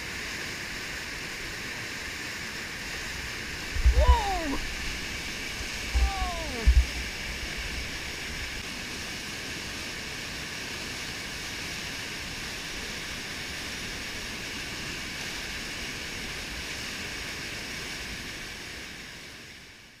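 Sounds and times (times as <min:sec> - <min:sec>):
whitewater rushing over rock: 0:00.1 - 0:19.6
person shouting: 0:03.8 - 0:04.7, 0:05.9 - 0:06.8.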